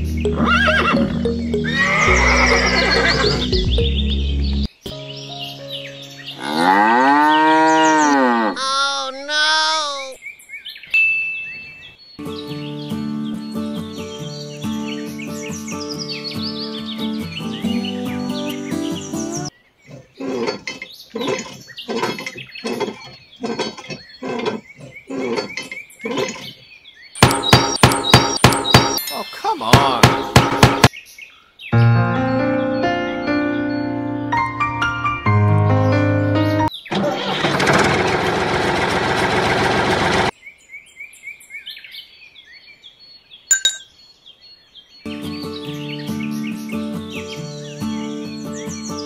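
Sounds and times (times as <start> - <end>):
small birds chirping: 0.0 - 30.1, 30.8 - 34.0, 40.3 - 49.0
tractor engine running rough: 36.9 - 40.3.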